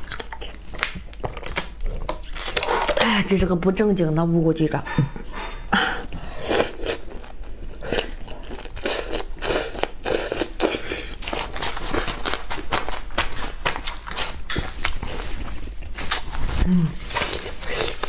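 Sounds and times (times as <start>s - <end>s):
crunchy chewing: 0.0s - 3.1s, 6.4s - 16.3s, 17.0s - 18.0s.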